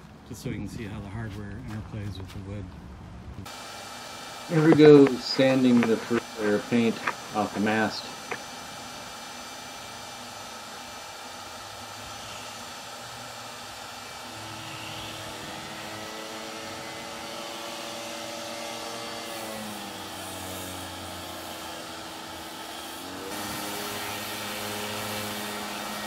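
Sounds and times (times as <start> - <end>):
shop vacuum running: 3.4 - 26.0
electric sander whine: 3.5 - 26.0.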